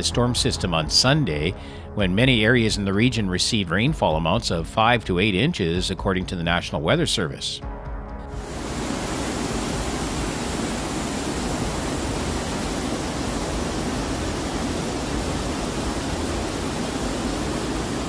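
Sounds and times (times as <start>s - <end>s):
water pouring through ceiling: 8.4s - 18.0s.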